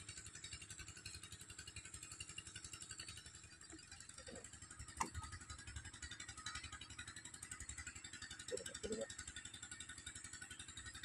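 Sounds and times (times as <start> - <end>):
distant engine puttering: 8.4 - 9.2.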